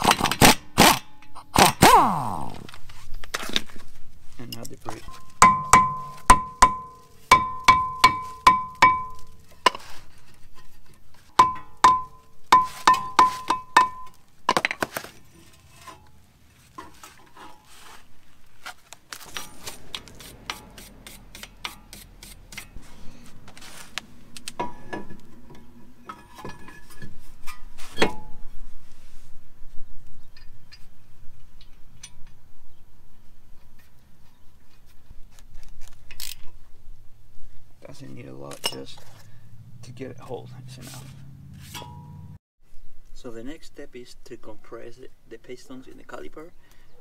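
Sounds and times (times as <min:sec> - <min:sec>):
handling sounds: 0:01.6 - 0:28.5
hammer ringing on metal rotor: 0:05.3 - 0:09.2.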